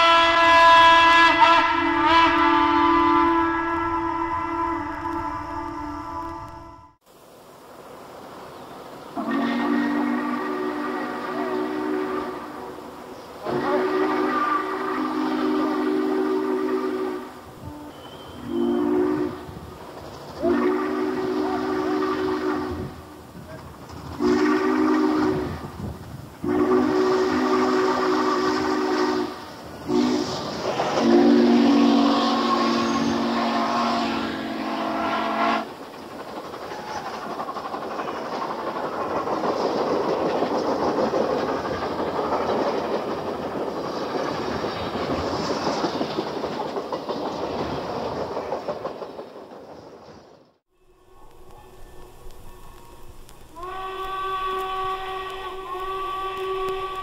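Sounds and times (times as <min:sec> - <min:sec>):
steam locomotive chime whistle: 0:00.0 - 0:07.0, 0:09.2 - 0:19.8, 0:20.4 - 0:23.2, 0:24.2 - 0:25.8, 0:26.4 - 0:35.7, 0:50.7 - 0:57.0
train wheels rumbling on rails: 0:00.0 - 0:07.0, 0:07.6 - 0:57.0.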